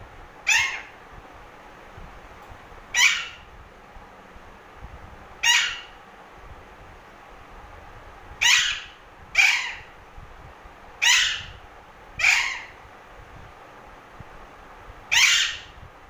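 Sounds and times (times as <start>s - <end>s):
parakeet harsh squawks: 0.4s - 0.9s, 2.9s - 3.5s, 5.4s - 6.0s, 8.4s - 9.9s, 11.0s - 11.6s, 12.2s - 12.8s, 15.1s - 15.8s.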